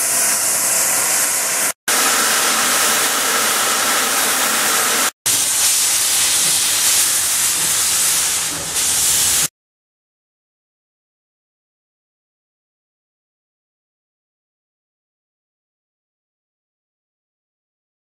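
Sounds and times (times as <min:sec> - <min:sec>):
loud steam hissing: 0:00.0 - 0:09.5.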